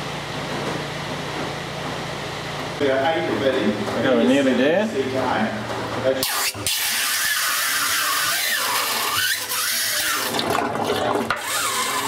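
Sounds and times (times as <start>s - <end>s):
oil draining through hose: 6.2s - 12.0s.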